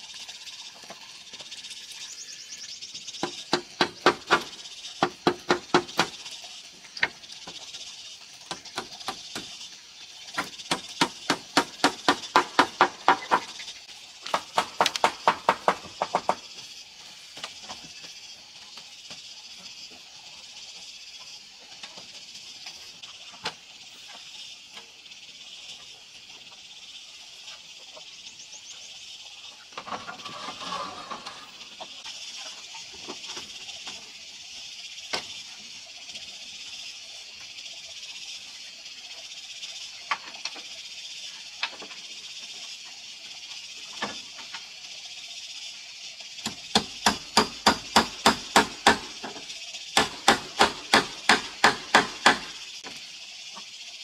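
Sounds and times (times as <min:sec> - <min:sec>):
hammer driving nails into metal roof: 0:50.0 - 0:52.5.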